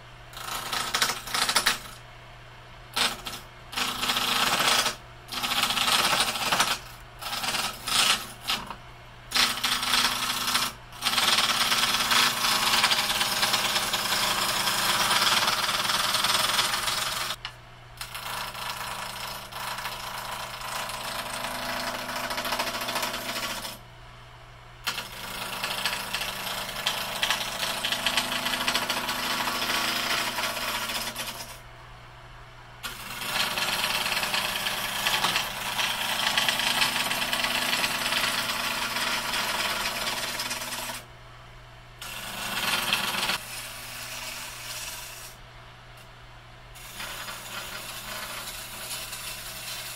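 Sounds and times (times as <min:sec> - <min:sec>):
gouge cutting wood: 0:04.0 - 0:08.7, 0:32.9 - 0:41.0.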